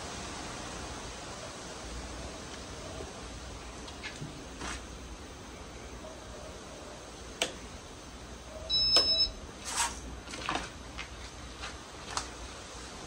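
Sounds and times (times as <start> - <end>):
steady low hum and hiss: 0.0 - 13.0
two-tone electronic beep: 8.7 - 9.4.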